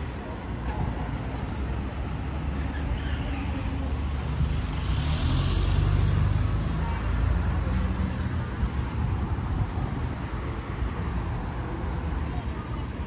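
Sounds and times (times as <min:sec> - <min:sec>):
low traffic rumble: 0:00.0 - 0:13.0
vehicle passing close by: 0:02.3 - 0:11.2.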